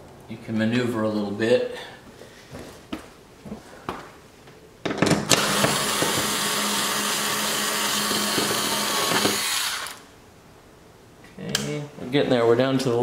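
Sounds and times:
power screwdriver humming: 0:05.3 - 0:10.0.

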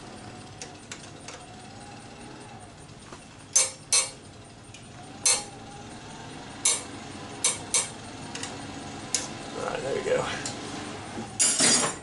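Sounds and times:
wrench clinking on metal fitting: 0:03.6 - 0:04.2.

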